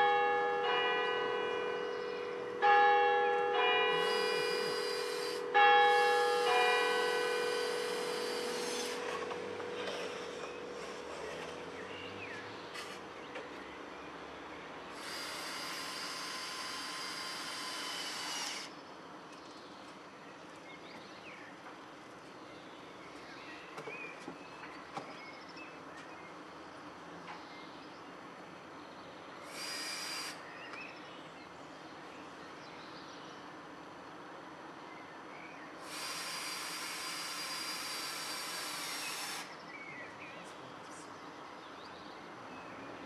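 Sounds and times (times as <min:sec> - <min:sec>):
cordless drill whine: 0:03.9 - 0:11.6, 0:14.9 - 0:18.7, 0:29.5 - 0:30.4, 0:35.8 - 0:39.5.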